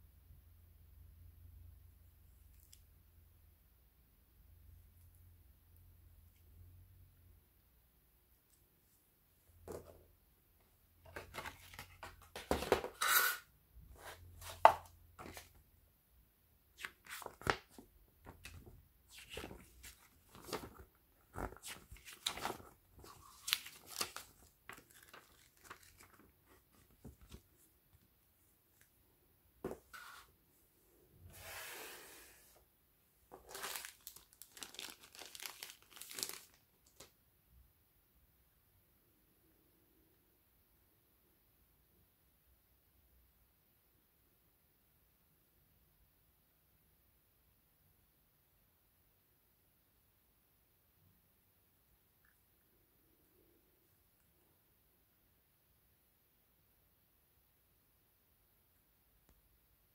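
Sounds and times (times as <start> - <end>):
cardboard and paper rustling: 11.0 - 13.0, 16.8 - 27.7, 33.3 - 37.0.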